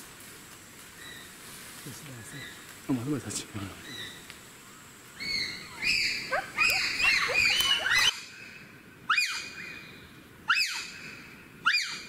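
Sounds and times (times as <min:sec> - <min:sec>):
bonobo alarm calls: 0:05.2 - 0:08.5.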